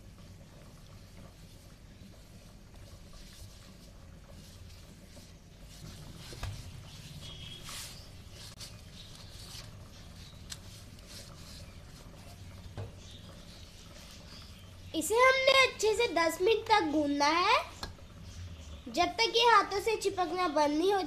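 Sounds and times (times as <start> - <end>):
dough scraping metal bowl: 2.7 - 14.6.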